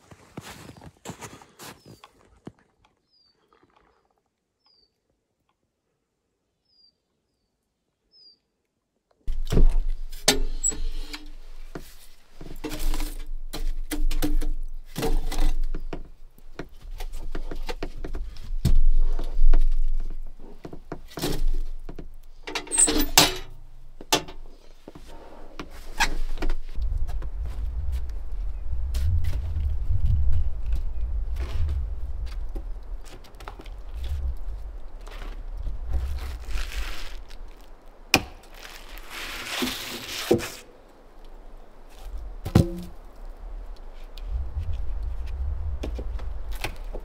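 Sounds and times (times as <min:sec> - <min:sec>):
faint bird chirps: 0:04.6 - 0:05.0, 0:06.6 - 0:08.6
low rumble: 0:26.6 - 0:38.1, 0:42.0 - 0:47.0.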